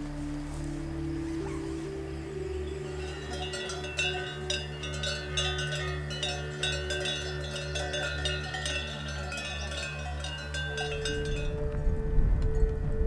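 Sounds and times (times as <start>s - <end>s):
sheep bells clanking: 2.6s - 11.6s.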